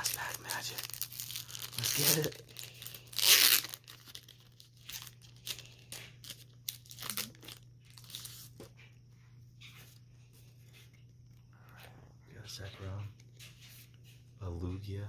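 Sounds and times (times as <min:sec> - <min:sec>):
foil pack ripping: 0:00.0 - 0:08.5
wrapper crinkling: 0:00.0 - 0:08.7.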